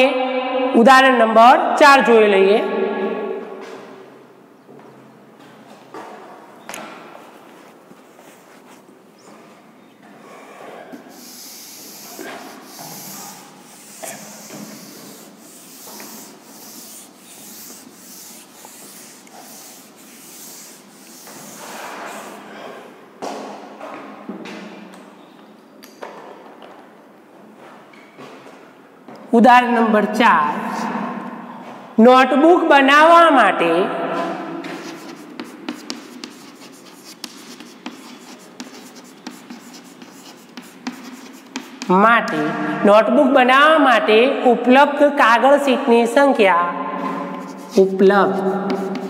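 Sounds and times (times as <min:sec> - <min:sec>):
duster rubbing on chalkboard: 0:07.2 - 0:09.3, 0:11.0 - 0:22.6, 0:34.6 - 0:42.0, 0:47.0 - 0:49.0.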